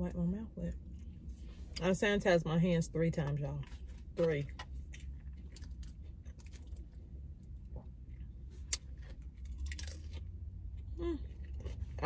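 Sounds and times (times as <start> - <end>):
lettuce crunching being chewed: 3.2 - 12.0.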